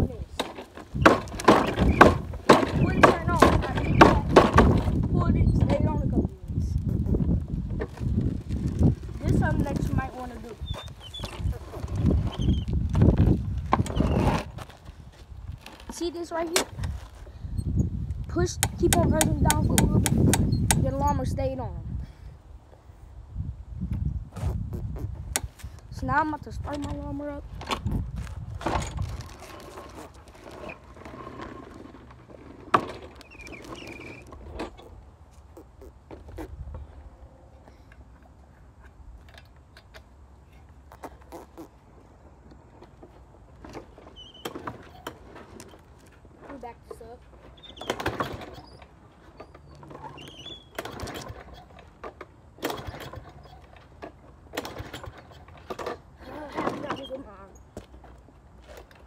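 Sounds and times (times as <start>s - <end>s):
lawnmower recoil starter cranking: 28.6s - 35.0s, 47.5s - 57.3s.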